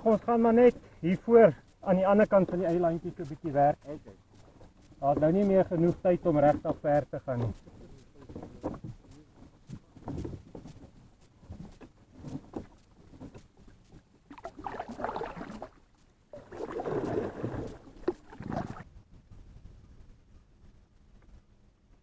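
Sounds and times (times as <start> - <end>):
kayak paddle splashing water: 12.3 - 18.8.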